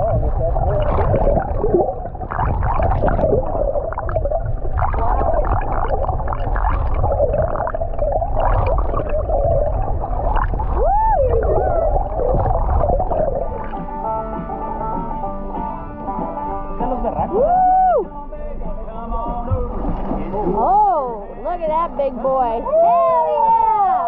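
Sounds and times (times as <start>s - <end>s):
gurgling water: 0.0s - 15.2s, 19.3s - 22.6s
wavering mid-pitched hum: 0.0s - 22.8s
low underwater rumble: 0.0s - 23.2s.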